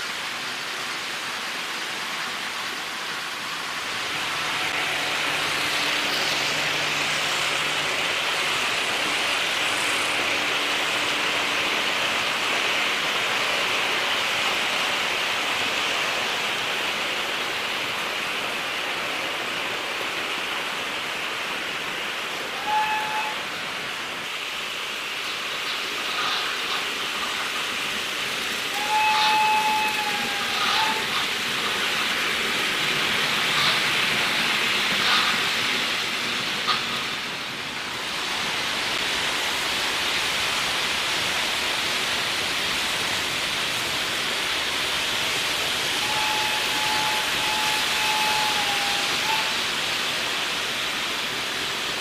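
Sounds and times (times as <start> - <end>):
model trains whirring on track: 0.0 - 52.0.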